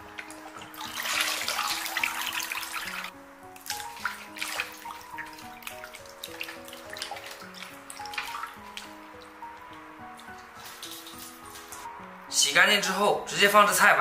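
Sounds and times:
water splashing in metal basin: 0.0s - 9.4s, 10.2s - 11.9s
water dripping: 0.0s - 11.9s
soft background music: 0.0s - 14.0s.

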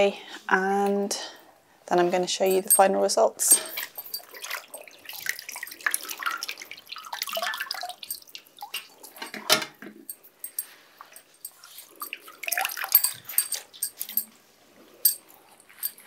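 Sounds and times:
liquid splashing and dripping: 3.7s - 9.4s, 11.9s - 14.2s
wet cloth splashing into colander: 3.8s - 9.2s.

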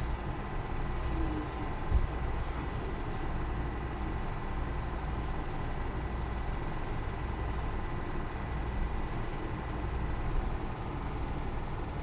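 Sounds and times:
film projector running: 0.0s - 12.0s.

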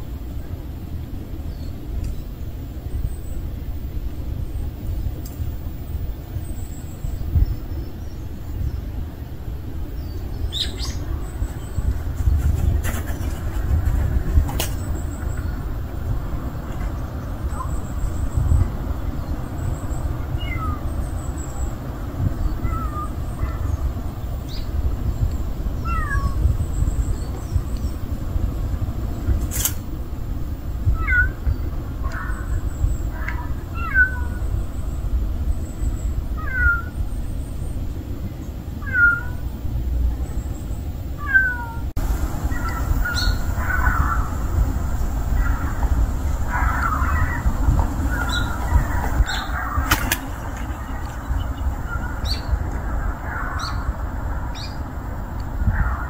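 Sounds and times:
steady low rumble: 0.0s - 56.0s
small birds chirping: 1.5s - 29.6s, 30.4s - 56.0s
sharp click: 29.4s - 29.8s.

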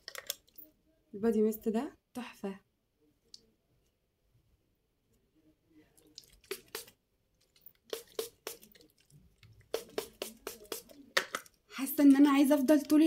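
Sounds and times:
spray bottle soft clicks: 6.4s - 6.9s, 7.9s - 8.8s, 9.7s - 11.0s.

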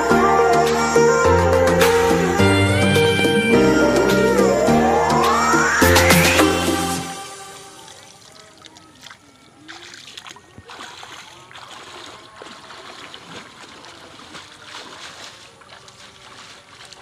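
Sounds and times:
muddy water sloshing and splashing: 7.8s - 17.0s.

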